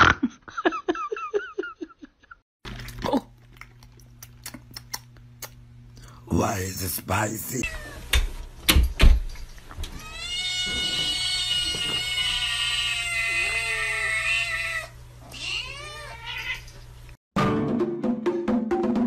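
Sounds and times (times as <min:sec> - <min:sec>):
cat meowing: 0:07.6 - 0:08.1, 0:09.9 - 0:16.7
cat yowling: 0:07.6 - 0:08.1, 0:09.9 - 0:16.7.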